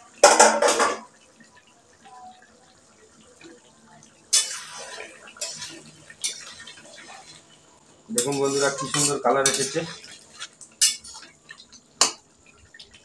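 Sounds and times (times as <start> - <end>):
metal spoon scraping a pan: 4.3 - 7.4, 8.1 - 11.4.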